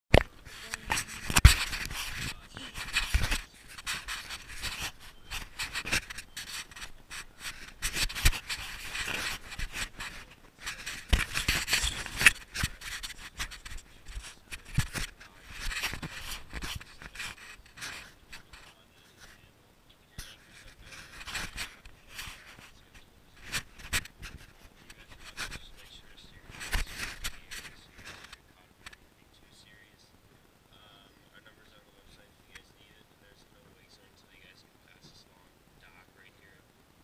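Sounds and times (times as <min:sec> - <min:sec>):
camera housing rubbing and knocking: 0:00.2 - 0:19.4, 0:20.2 - 0:29.0.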